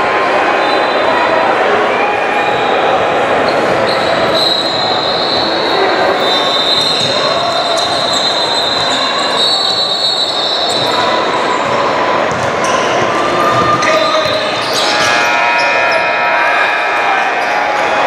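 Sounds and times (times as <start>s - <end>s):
voices echoing in a hall: 0.0s - 18.0s
high squeal: 3.5s - 11.6s, 13.5s - 16.7s.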